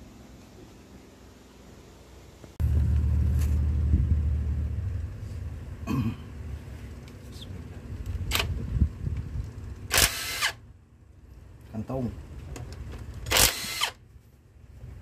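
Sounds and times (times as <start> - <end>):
low rumble: 2.6 - 10.0
impact wrench burst: 9.9 - 10.6, 13.3 - 14.0.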